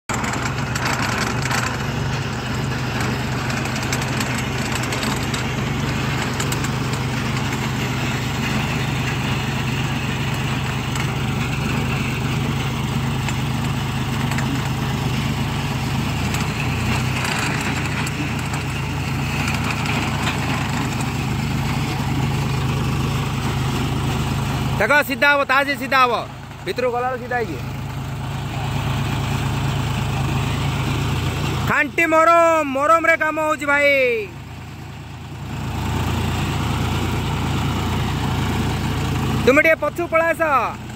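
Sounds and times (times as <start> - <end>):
tractor diesel engine running: 0.0 - 40.9
earth auger boring into soil: 0.1 - 40.9.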